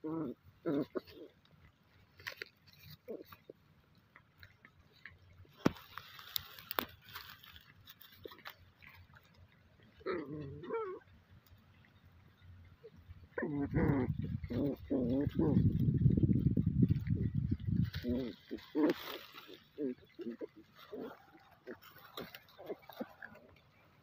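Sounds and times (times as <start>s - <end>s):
puppies scuffling on straw: 0.8s - 9.9s, 13.8s - 24.0s
puppy crying: 10.0s - 11.1s.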